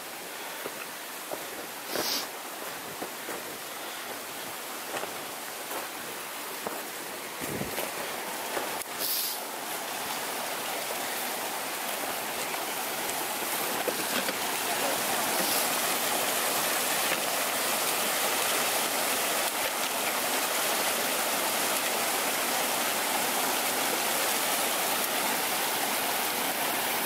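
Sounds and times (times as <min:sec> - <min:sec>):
brook rushing over rocks: 0:00.4 - 0:27.0
footsteps crunching in snow: 0:00.6 - 0:09.3.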